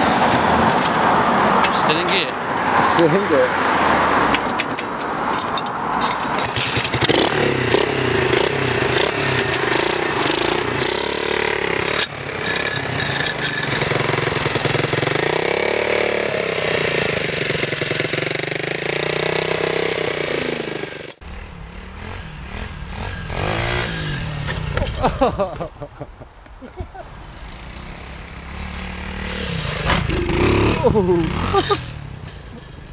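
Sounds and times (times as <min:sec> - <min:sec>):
motorbike engine revving: 0:06.4 - 0:25.1, 0:27.3 - 0:32.8.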